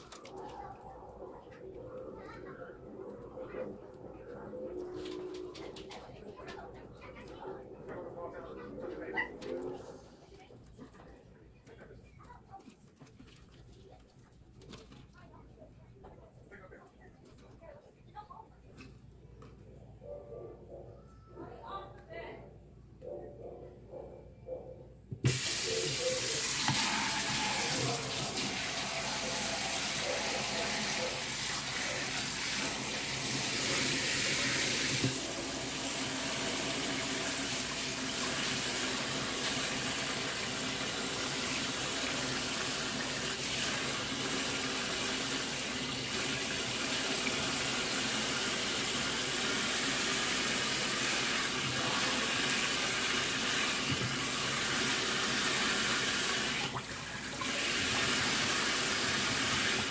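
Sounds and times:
faucet water running into sink: 25.2s - 59.9s.

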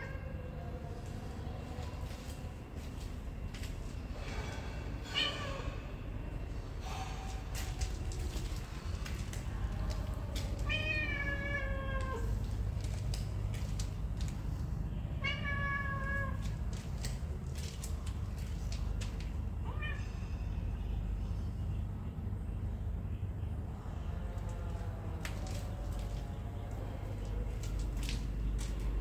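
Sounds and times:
steady low rumble: 5.7s - 29.0s
cat meowing: 10.6s - 12.4s, 15.2s - 16.4s.

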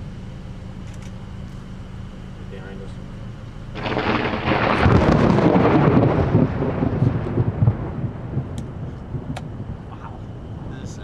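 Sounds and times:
thunder crash and rumble: 3.8s - 11.0s.

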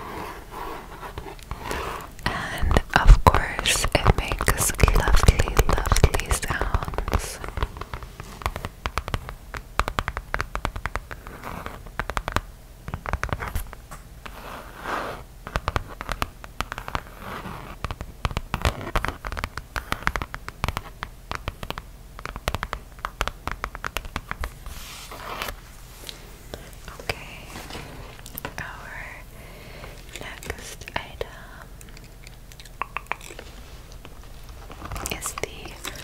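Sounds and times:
fingernails tapping on leather: 7.7s - 13.8s, 15.5s - 24.5s.

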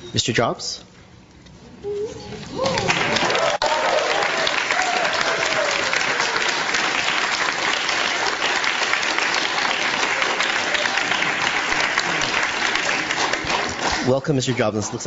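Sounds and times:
audience applauding: 2.5s - 14.4s.

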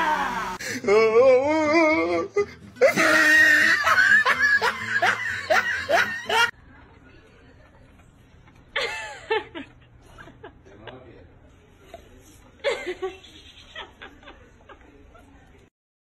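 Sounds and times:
wavering drawn-out vocal sound: 0.0s - 3.7s
person laughing hard: 2.4s - 6.5s.

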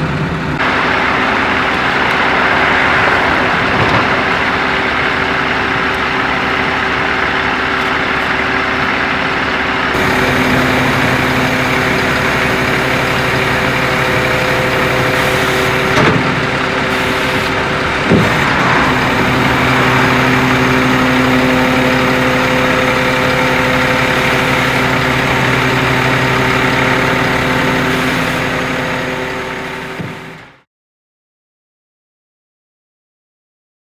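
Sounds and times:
truck engine idling: 0.0s - 30.6s.

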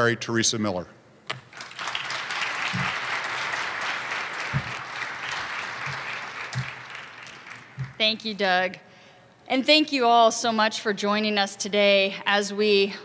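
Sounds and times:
audience applauding: 1.4s - 8.1s.

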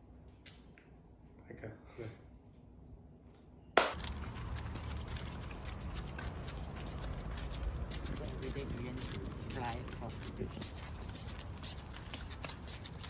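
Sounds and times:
light jogging footfalls: 3.8s - 13.0s.

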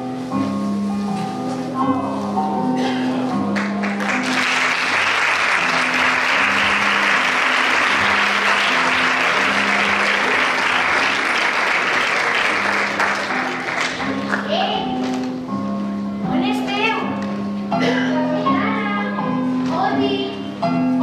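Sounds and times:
background music: 0.0s - 21.0s
audience applauding: 3.6s - 14.5s.

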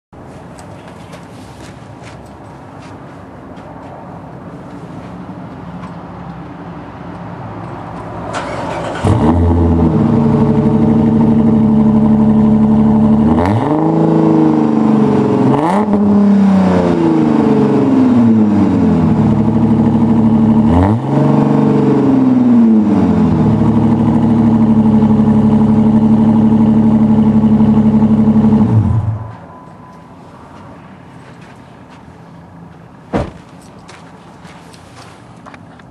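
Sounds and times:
car engine revving: 8.3s - 29.4s.

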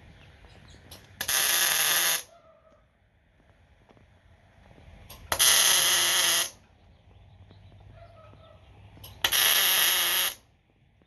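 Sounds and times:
welding arc striking snap: 0.9s - 2.3s, 9.0s - 10.4s
arc welding crackling hiss: 1.2s - 2.2s, 5.4s - 6.5s, 9.2s - 10.4s.

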